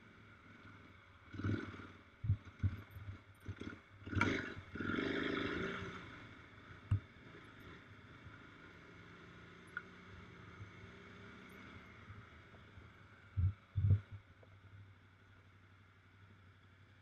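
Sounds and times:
motorcycle engine: 0.0s - 14.0s
wind noise: 13.4s - 14.2s.

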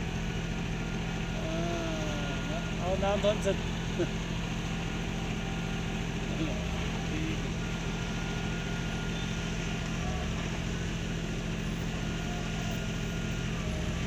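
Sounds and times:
diesel concrete pump droning: 0.0s - 14.0s.

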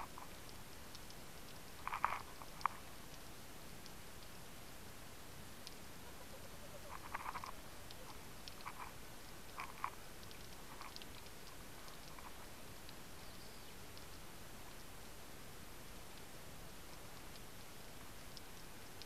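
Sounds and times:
small clicks: 0.0s - 4.4s, 6.9s - 13.0s.

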